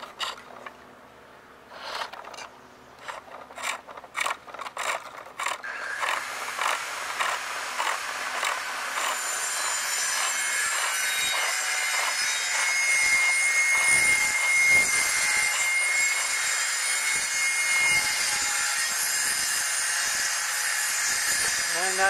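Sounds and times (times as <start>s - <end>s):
chisel shaving wood on lathe: 3.0s - 16.4s.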